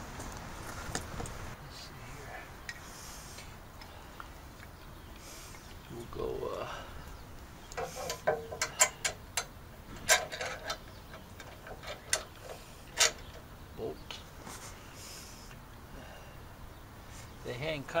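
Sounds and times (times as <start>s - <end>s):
metal hardware clicking and clinking: 7.7s - 13.4s.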